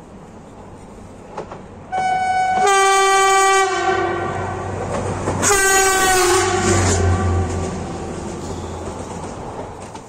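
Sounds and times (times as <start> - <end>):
low rumble of passing train: 0.0 - 10.0
train horn blasts: 1.9 - 4.8, 5.4 - 8.1.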